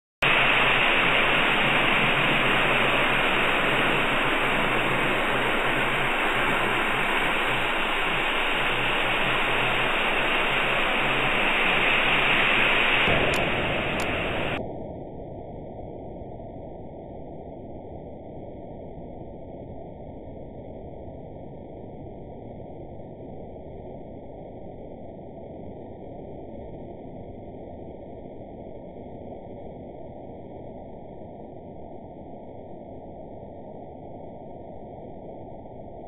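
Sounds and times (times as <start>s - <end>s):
microphone hiss: 0.2s - 14.6s.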